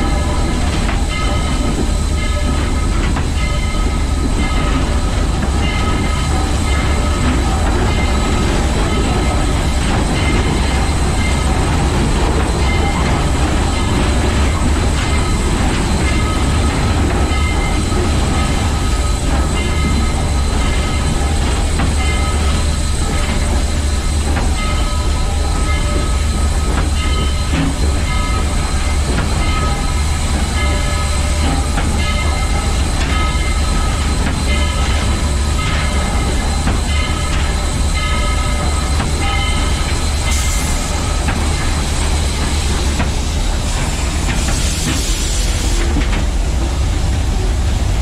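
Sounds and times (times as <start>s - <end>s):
steam locomotive heavy rumble: 0.0s - 48.0s.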